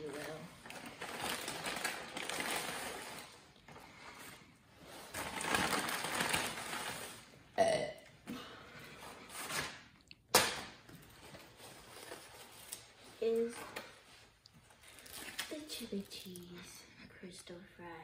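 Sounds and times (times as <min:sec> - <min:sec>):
paper bag crinkling: 0:00.0 - 0:04.2, 0:04.8 - 0:07.3
person burping: 0:07.6 - 0:08.1.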